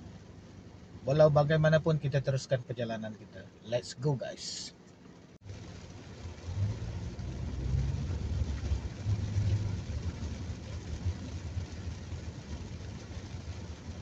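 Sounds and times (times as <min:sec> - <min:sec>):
car engine and tyre drone: 0:00.0 - 0:14.0
rain and wet road hiss: 0:00.0 - 0:14.0.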